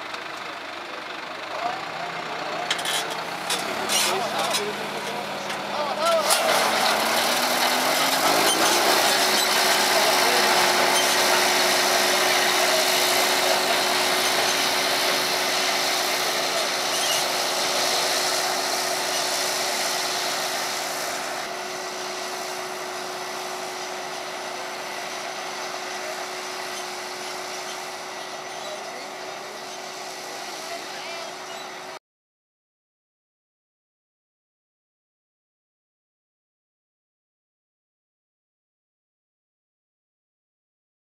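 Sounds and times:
granules hissing from spreader: 2.6 - 32.0.

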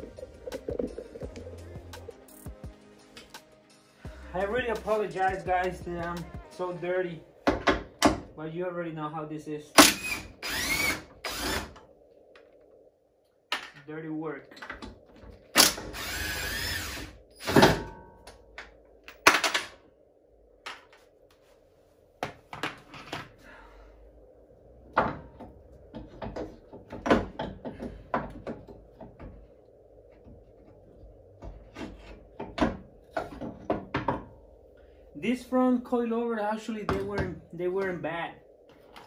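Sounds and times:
cordless power tool running: 9.9 - 11.7.

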